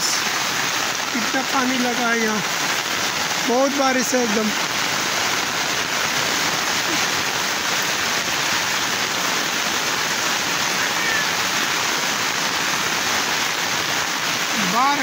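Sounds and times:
heavy rain pouring: 0.0 - 15.0.

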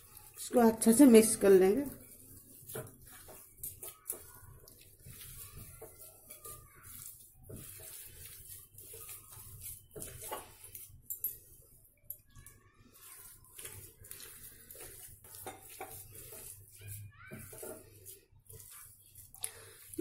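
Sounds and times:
hand squishing dough: 0.0 - 20.0.

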